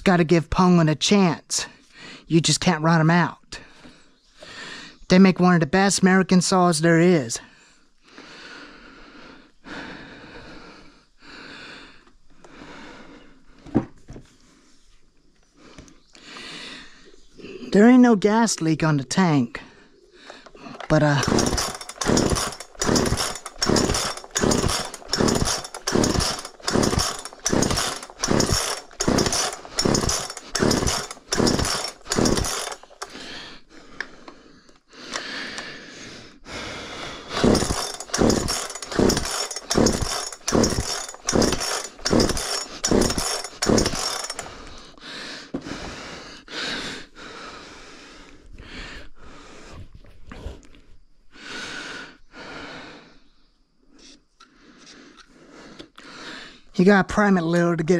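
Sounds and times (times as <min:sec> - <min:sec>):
chainsaw engine revving: 0:20.8 - 0:33.4, 0:37.2 - 0:44.6.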